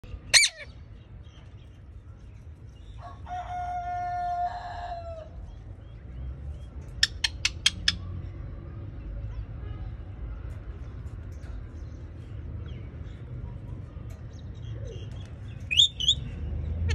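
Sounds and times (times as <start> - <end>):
parakeet screeching calls: 0.3 - 0.8.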